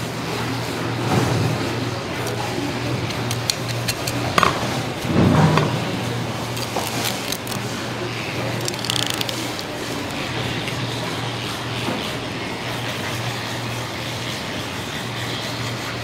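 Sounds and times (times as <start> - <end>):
low background hum: 0.0 - 16.0
knife clicking along fish bones: 3.1 - 4.5, 6.5 - 7.6, 8.5 - 10.2.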